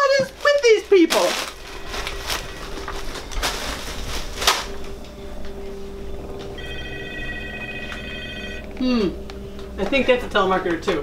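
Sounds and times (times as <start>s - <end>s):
telephone ringing: 1.6s - 3.4s, 5.2s - 8.8s.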